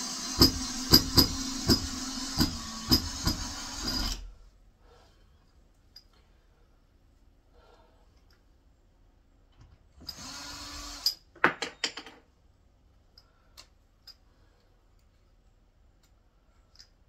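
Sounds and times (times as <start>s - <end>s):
cordless screwdriver driving screw: 0.0s - 4.2s.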